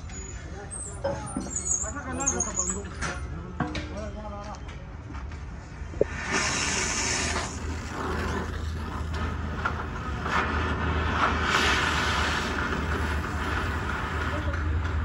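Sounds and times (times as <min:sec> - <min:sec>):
sharp high hiss: 0:06.0 - 0:07.9
cutting torch flame hissing: 0:06.0 - 0:14.9.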